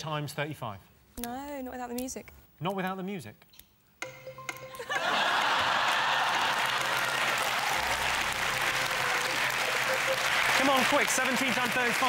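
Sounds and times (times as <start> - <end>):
audience applause: 5.0 - 12.0.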